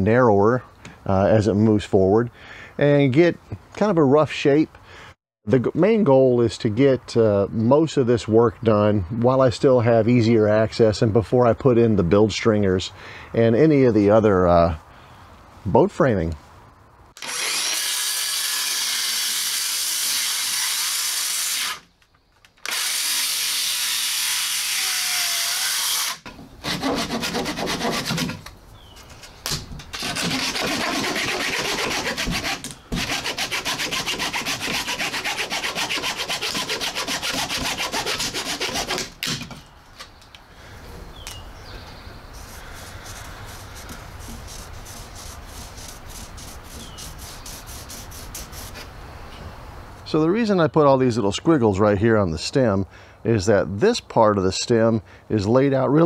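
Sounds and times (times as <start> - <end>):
circular saw cutting wood: 17.2 - 21.9, 22.6 - 28.4, 30.0 - 39.1
pencil scratching on wood: 30.0 - 39.1, 42.4 - 48.8.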